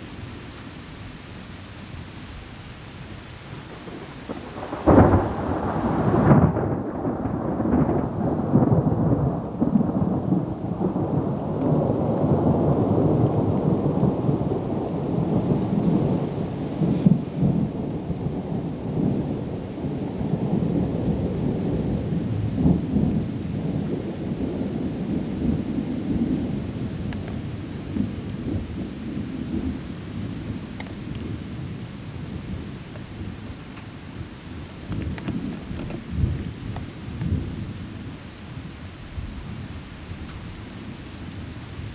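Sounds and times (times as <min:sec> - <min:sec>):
steady rain: 0:00.0 - 0:41.9
thunder rumbling: 0:00.0 - 0:41.9
thunder crack: 0:03.6 - 0:33.7, 0:34.7 - 0:38.1.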